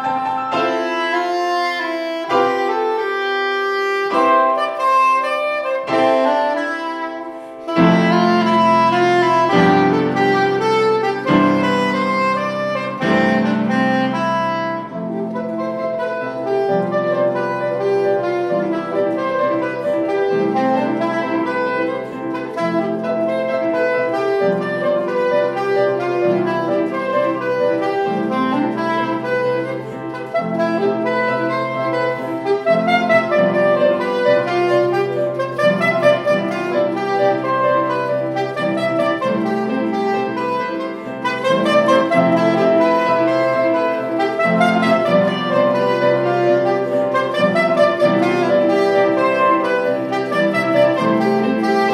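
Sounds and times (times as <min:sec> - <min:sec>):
piano chords: 0:00.0 - 0:51.9
soprano saxophone melody: 0:00.0 - 0:51.9.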